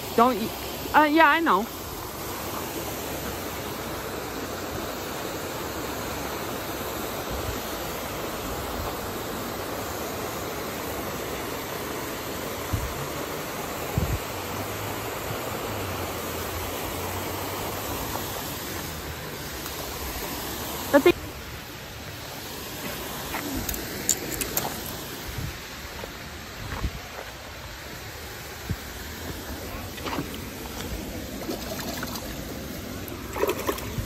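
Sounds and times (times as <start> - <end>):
water pouring over spillway: 29.9 - 34.0.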